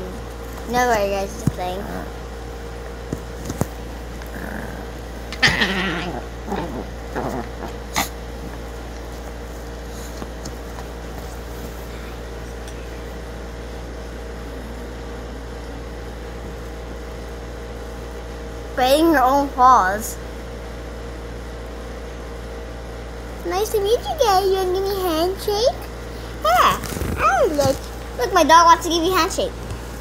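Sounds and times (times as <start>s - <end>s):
steady low hum: 0.0s - 30.0s
small dog play-growling: 1.4s - 2.3s, 3.1s - 12.8s.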